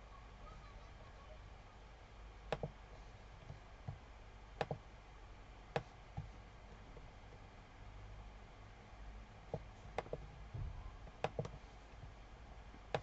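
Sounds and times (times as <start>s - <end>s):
faint low hum: 0.0s - 13.0s
computer mouse clicks: 2.5s - 2.8s, 4.6s - 4.8s, 9.5s - 10.2s, 11.0s - 12.1s, 12.7s - 13.0s.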